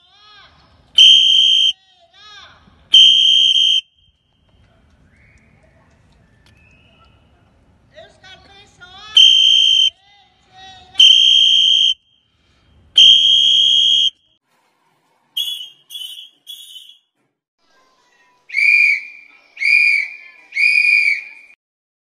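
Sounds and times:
whistle blasts: 1.0 - 1.8, 2.9 - 4.3, 9.2 - 9.9, 11.0 - 12.3, 13.0 - 14.4, 15.4 - 17.1, 18.5 - 21.6.

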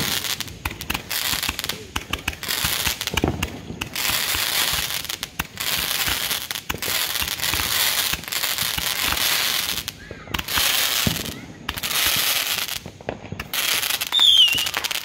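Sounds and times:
crackle of firework sparks: 0.0 - 15.0
firework shots popping: 0.0 - 15.0.

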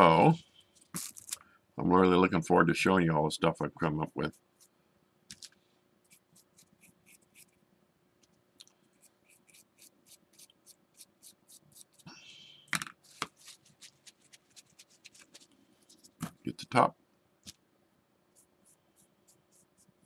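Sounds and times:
paintbrush scratching and dabbing: 13.1 - 16.2, 18.3 - 20.0.

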